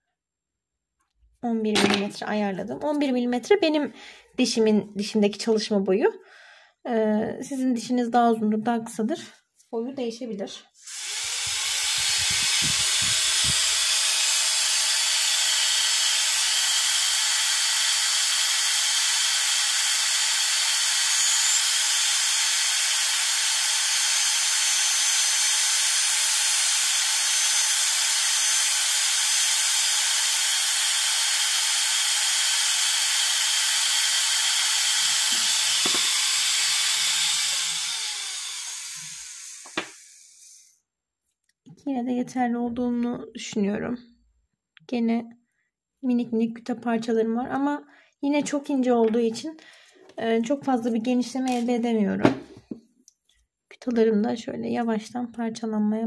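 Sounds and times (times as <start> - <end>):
dental drill whining: 10.8 - 40.8.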